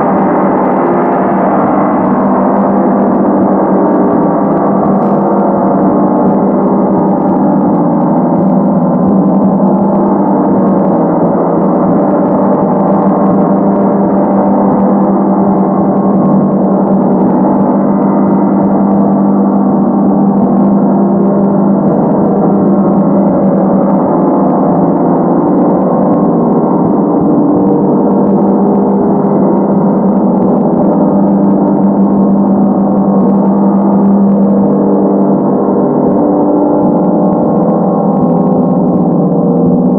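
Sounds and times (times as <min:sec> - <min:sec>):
gong ringing: 0:00.0 - 0:39.9.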